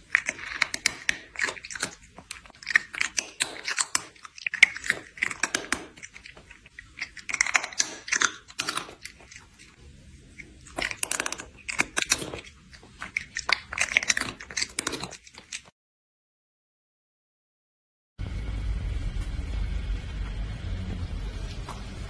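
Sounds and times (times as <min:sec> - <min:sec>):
cat chewing noisily: 0:00.0 - 0:15.7.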